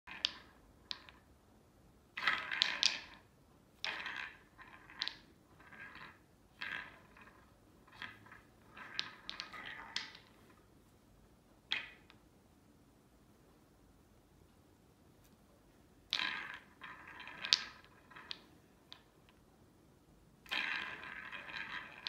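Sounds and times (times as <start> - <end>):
wooden balls rattling in tracks: 0.1 - 1.5, 2.1 - 12.4, 16.0 - 19.5, 20.4 - 22.0.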